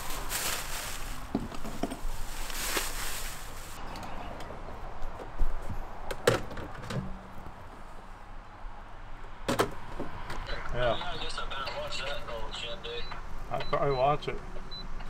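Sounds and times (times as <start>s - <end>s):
rustling: 0.0s - 3.8s.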